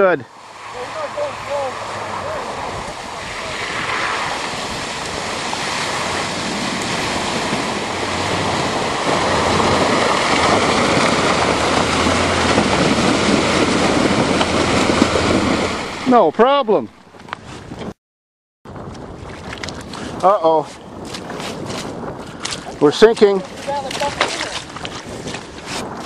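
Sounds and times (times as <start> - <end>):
rushing of mud and water: 0.0 - 16.6, 18.7 - 26.0
truck engine under load: 5.2 - 16.0.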